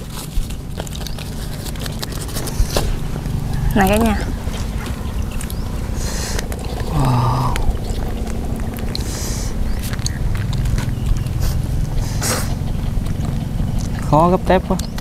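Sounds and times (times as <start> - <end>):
crisp crunches: 0.0 - 14.1
chewing: 0.0 - 15.0
steady low rumble: 0.0 - 15.0
low hum of a voice: 3.3 - 8.2.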